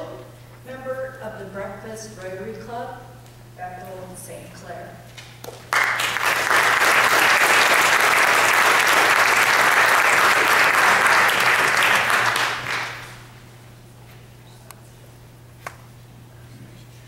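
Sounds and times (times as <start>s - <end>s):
audience applauding: 5.5s - 13.3s.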